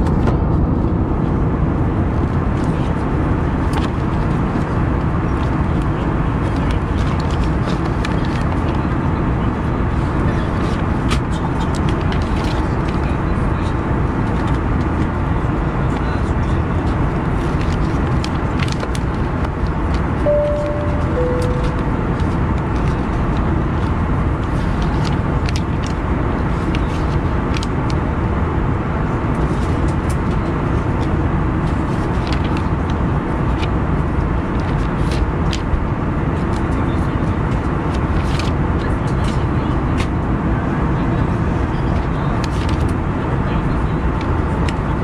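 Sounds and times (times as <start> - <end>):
airliner cabin rumble: 0.0 - 45.0
two-note cabin chime: 20.3 - 22.0.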